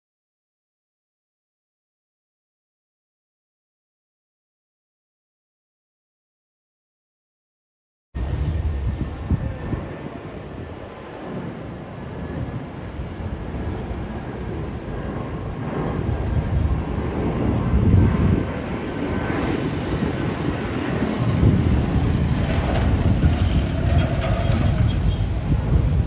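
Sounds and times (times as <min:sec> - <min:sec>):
jet airliner rumble overhead: 0:08.2 - 0:26.0.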